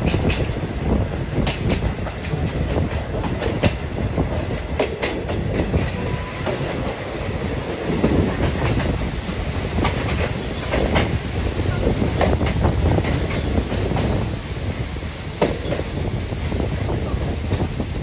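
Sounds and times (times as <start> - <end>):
wheels clacking over rail joints: 0.0 - 7.0, 7.9 - 14.3
train wheels rumbling on rail: 0.0 - 18.0.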